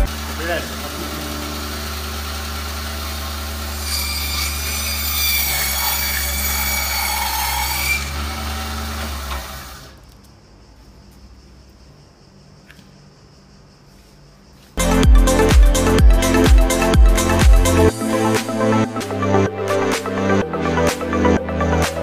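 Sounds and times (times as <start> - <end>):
bandsaw motor hum: 0.0 - 10.0
saw blade cutting whine: 0.0 - 10.0.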